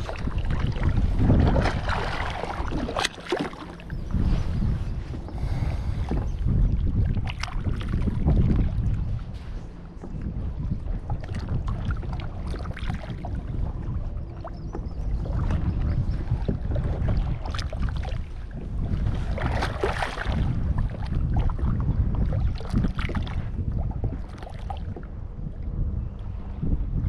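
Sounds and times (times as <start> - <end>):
small splashes and knocks: 0.0 - 4.0, 19.3 - 21.4
water slapping plastic hull: 0.0 - 4.2, 6.0 - 9.0, 14.4 - 25.1
wind rumbling on microphone: 0.0 - 27.0.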